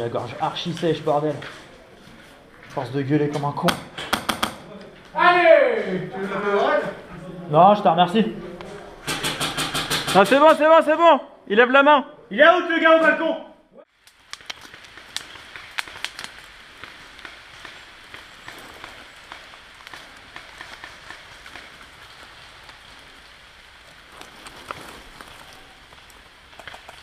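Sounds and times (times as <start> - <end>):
rustling hiss: 13.9 - 27.0
small ticks and crackles: 13.9 - 27.0.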